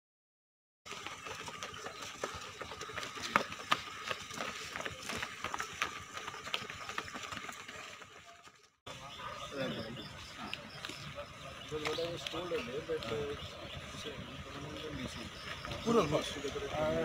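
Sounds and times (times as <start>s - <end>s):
people running on pavement: 0.9s - 17.0s.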